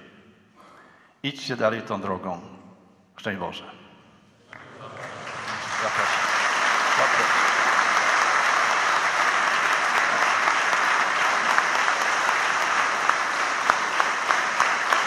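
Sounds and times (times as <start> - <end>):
large audience applauding: 4.5 - 15.0.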